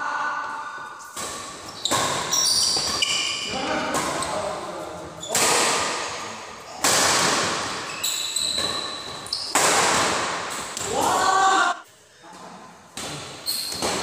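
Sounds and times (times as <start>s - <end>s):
badminton racket hitting shuttlecock: 1.0s - 4.4s, 5.3s - 11.0s.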